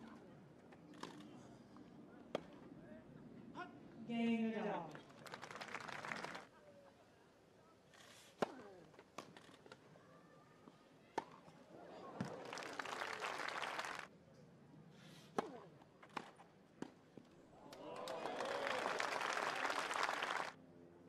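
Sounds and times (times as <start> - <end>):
crowd applause and cheering: 5.2 - 6.5, 12.2 - 14.1, 17.7 - 20.6
tennis ball struck by rackets: 15.4 - 17.0.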